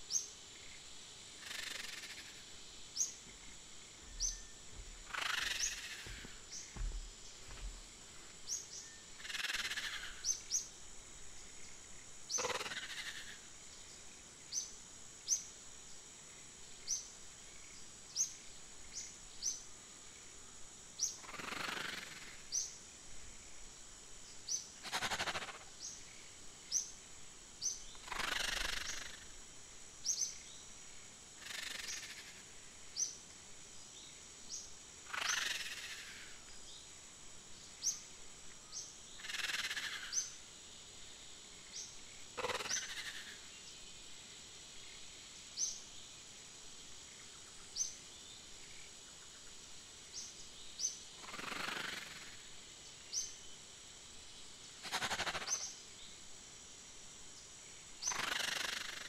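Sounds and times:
steady high-pitched hum: 0.0 - 21.2
high rising bird chirps: 4.0 - 7.6.

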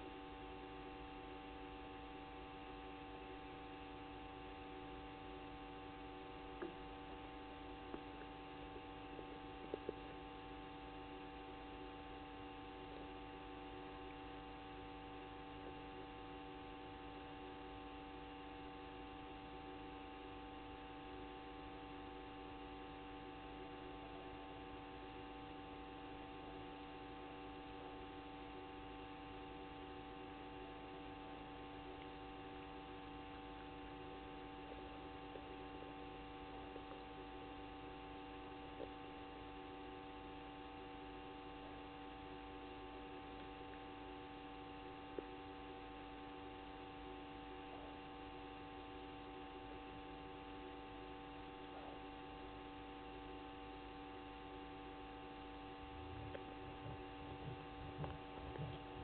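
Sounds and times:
steady electrical hum: 0.0 - 59.0
low irregular thumps: 56.0 - 59.0.

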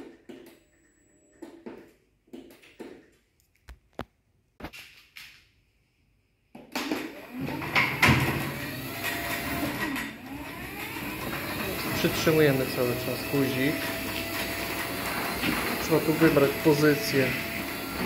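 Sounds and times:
garage door opener running: 6.8 - 18.0.

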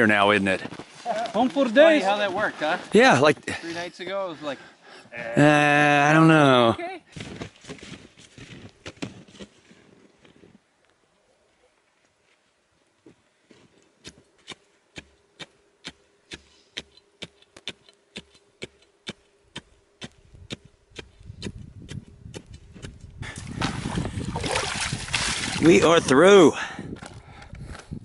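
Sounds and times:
water rushing and sloshing: 23.6 - 26.0.

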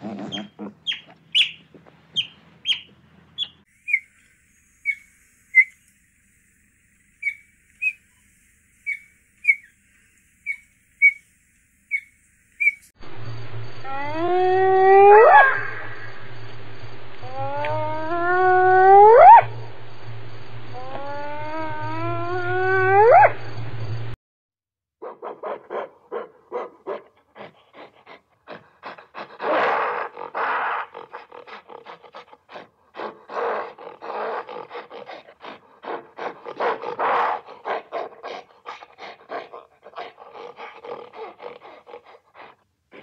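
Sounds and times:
gorilla rapid grunts: 0.0 - 0.8
hyena whoop: 13.9 - 15.8, 17.2 - 19.4.

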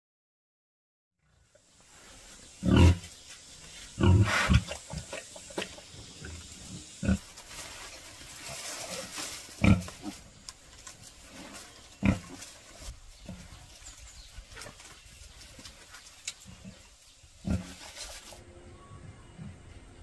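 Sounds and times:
faint rustle: 1.4 - 18.4
pigs grunting: 2.6 - 3.1, 4.0 - 7.7, 8.3 - 10.3, 11.2 - 13.7, 16.4 - 18.4.

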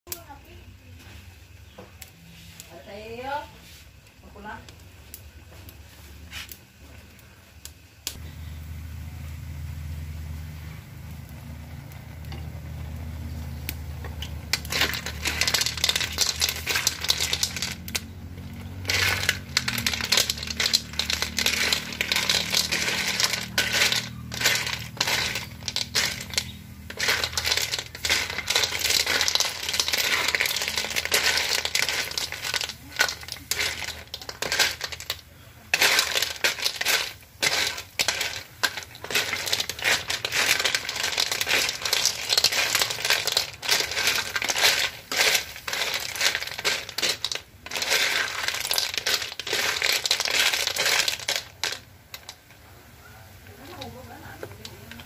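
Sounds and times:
sizzling: 0.1 - 55.0
snail shells clattering in a wok: 11.4 - 52.6, 53.3 - 55.0.

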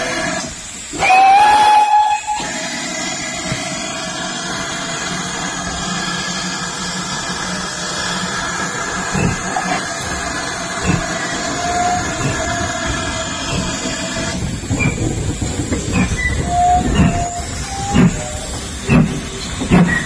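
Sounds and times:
steam locomotive hissing steam: 0.0 - 20.0
locomotive exhaust beats: 0.7 - 20.0
steam locomotive whistle: 0.9 - 2.8, 11.6 - 12.5, 16.1 - 18.6.

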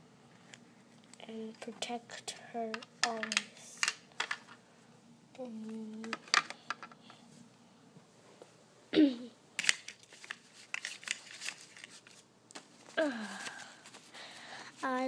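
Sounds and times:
plastic toys clicking and tapping: 2.7 - 4.6, 5.7 - 7.2.

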